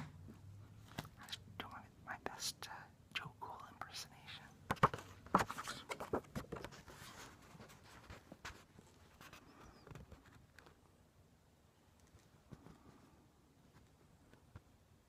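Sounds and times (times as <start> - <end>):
faint small clicks and ticks: 11.9 - 12.8.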